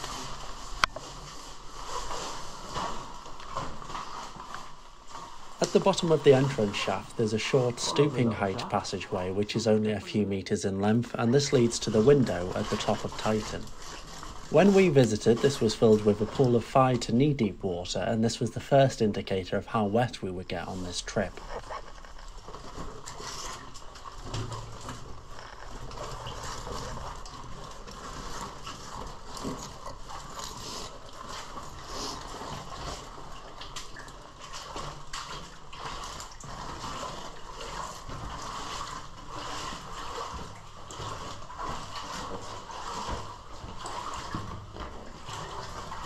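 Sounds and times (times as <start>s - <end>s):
water sloshing and splashing: 0.0s - 46.0s.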